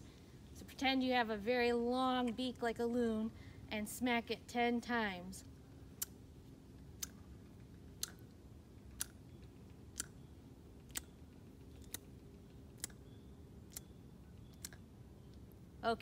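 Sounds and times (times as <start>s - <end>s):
person making sharp mouth clicks: 6.0s - 6.2s, 7.9s - 8.3s, 8.9s - 9.2s, 9.9s - 10.2s, 10.9s - 11.2s, 11.8s - 12.1s, 12.8s - 13.0s, 14.5s - 14.9s.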